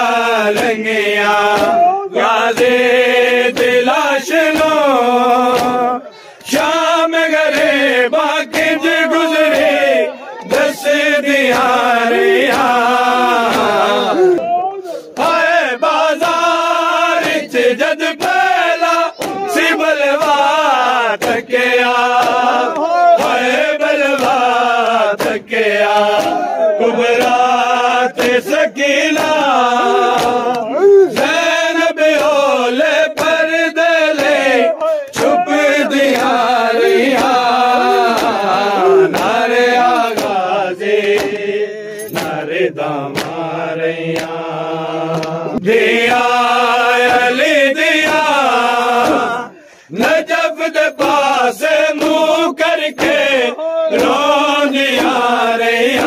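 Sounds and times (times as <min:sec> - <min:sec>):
men chanting a lament: 0:00.0 - 0:56.0
hand slaps on chest: 0:01.5 - 0:01.9, 0:05.5 - 0:05.8, 0:19.2 - 0:19.5, 0:21.2 - 0:21.5, 0:22.1 - 0:23.4, 0:25.2 - 0:26.5, 0:30.1 - 0:31.4, 0:33.1 - 0:33.4, 0:38.1 - 0:38.4, 0:39.1 - 0:40.4, 0:41.0 - 0:41.5, 0:43.1 - 0:43.4, 0:44.2 - 0:44.4, 0:45.1 - 0:45.7, 0:51.9 - 0:52.2.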